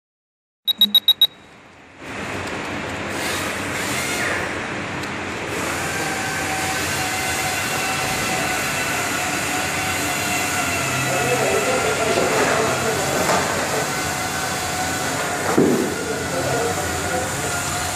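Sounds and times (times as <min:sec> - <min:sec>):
short high electronic beeps: 0:00.7 - 0:01.5.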